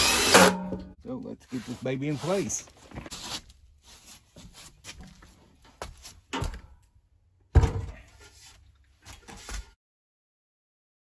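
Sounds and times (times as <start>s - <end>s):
heavy stove knocks and thumps: 7.5s - 8.0s.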